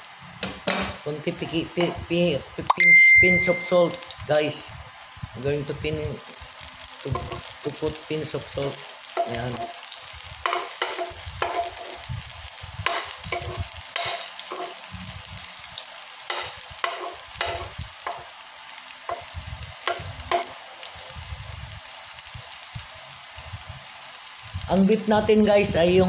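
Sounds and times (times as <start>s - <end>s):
garlic sizzling in oil: 0.0s - 26.0s
metal spoon scraping pan: 0.4s - 2.1s, 9.2s - 12.1s, 12.8s - 14.9s, 16.3s - 18.3s, 19.1s - 20.6s.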